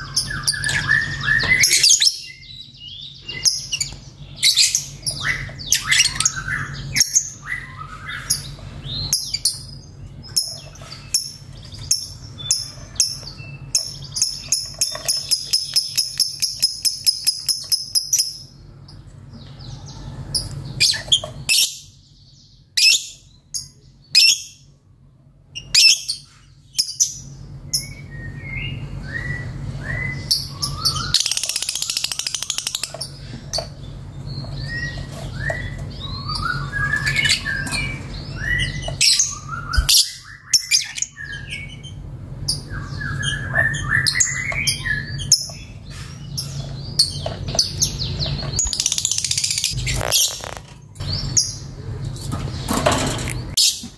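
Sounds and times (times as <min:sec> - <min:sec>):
lovebird chirping: 0:26.8 - 0:33.6, 0:34.2 - 0:51.7
bird chattering: 0:30.4 - 0:33.0.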